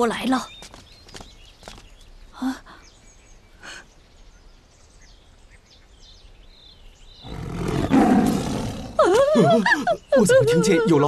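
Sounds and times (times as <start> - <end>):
faint bird chirps: 0.0 - 11.0
tiger roaring: 7.2 - 9.2.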